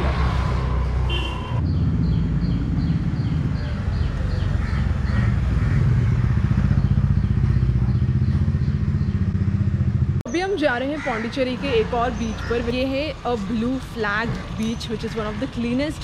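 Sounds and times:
small motorcycle engine idling: 2.8s - 10.2s.

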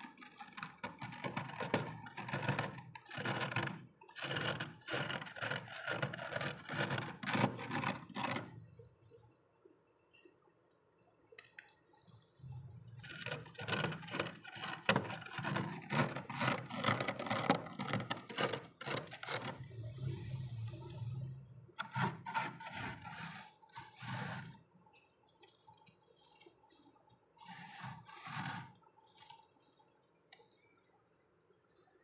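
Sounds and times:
knife scraping frost: 21.8s - 24.6s, 27.4s - 28.8s.

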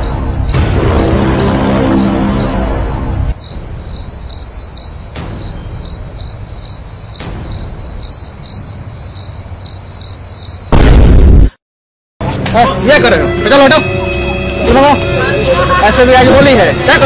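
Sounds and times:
background music: 0.0s - 8.2s, 12.2s - 17.0s
cricket chirping: 0.0s - 10.8s.

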